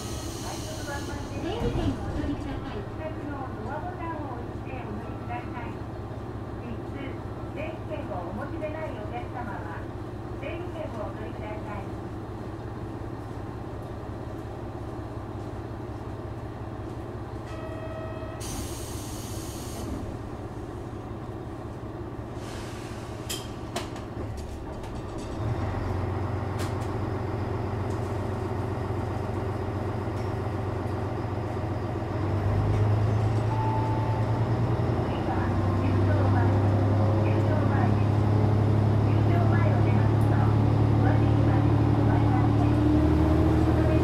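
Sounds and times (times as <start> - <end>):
air brakes hissing: 0.0 - 1.4, 18.4 - 20.0, 22.3 - 23.5
diesel railcar engine: 0.0 - 44.0
short buzzer tone: 17.5 - 18.7.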